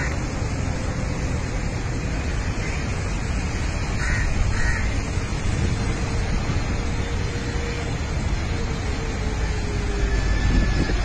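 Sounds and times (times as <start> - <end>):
crow cawing: 4.0 - 4.9.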